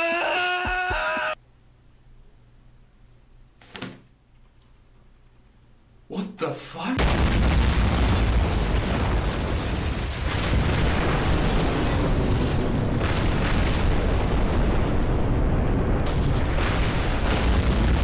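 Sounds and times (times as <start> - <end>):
rumbling explosion boom: 7.0 - 18.0.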